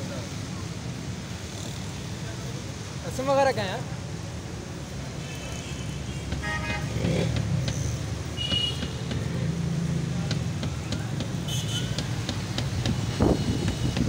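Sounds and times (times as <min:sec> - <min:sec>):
street traffic hum: 0:00.0 - 0:14.0
car horn toot: 0:05.6 - 0:07.0, 0:08.4 - 0:09.0, 0:11.4 - 0:12.0.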